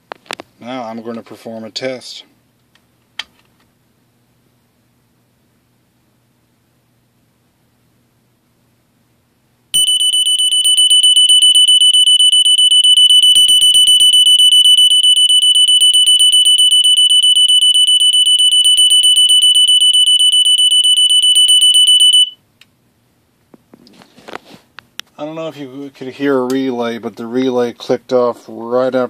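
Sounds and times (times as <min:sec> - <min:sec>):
smoke alarm pulsing tone: 0:09.8 - 0:22.4.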